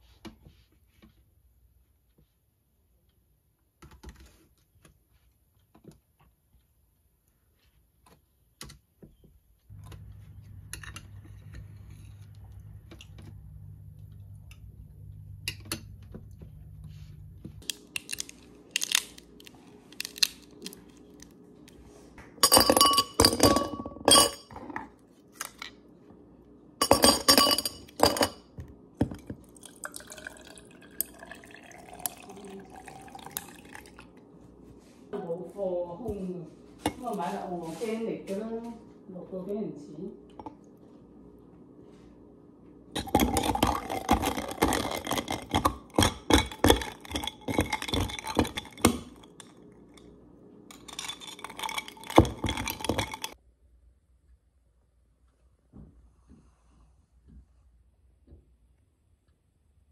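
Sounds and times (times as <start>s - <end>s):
ice cubes clinking in glass: 26.8s - 28.4s, 43.0s - 49.5s, 50.7s - 53.4s
drink pouring over ice: 29.4s - 34.1s, 43.0s - 45.6s, 50.7s - 53.4s.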